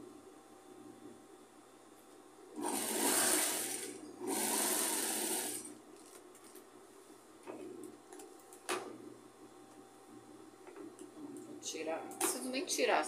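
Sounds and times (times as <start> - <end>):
sewing machine running: 2.6 - 5.7.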